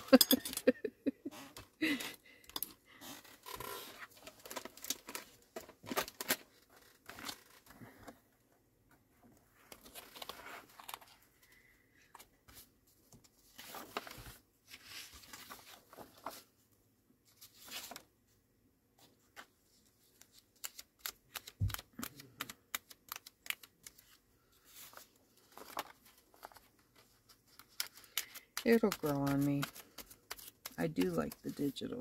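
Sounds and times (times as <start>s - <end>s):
pages turning: 2.6s - 8.2s, 9.6s - 11.3s, 12.2s - 16.5s, 17.3s - 18.1s, 19.0s - 32.0s
paper rustling: 3.2s - 8.1s, 12.1s - 16.6s, 17.3s - 18.1s, 19.0s - 32.0s.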